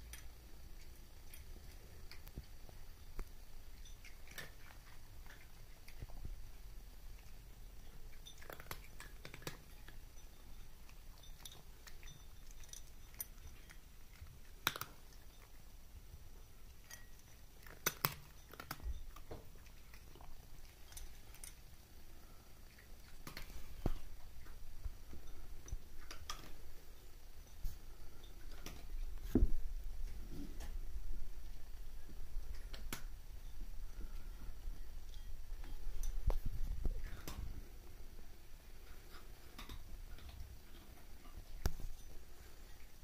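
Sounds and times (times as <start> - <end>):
cat crunching dry kibble: 0.0 - 10.1, 10.8 - 15.7, 16.6 - 27.0.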